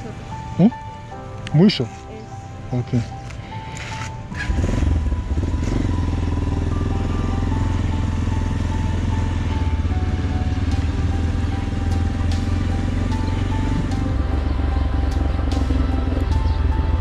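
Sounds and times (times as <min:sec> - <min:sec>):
motorcycle engine pulling away: 0:04.0 - 0:17.0.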